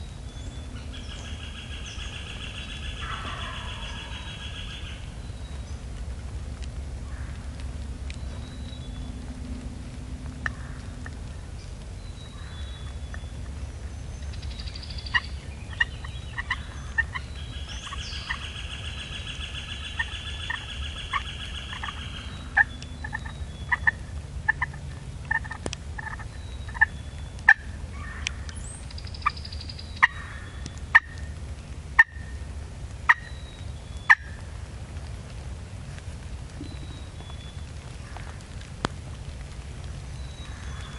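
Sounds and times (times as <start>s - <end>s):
turkey gobbling: 1.0s - 5.0s, 15.1s - 28.4s, 30.0s - 31.3s, 32.0s - 32.3s, 33.1s - 33.3s, 34.1s - 34.4s.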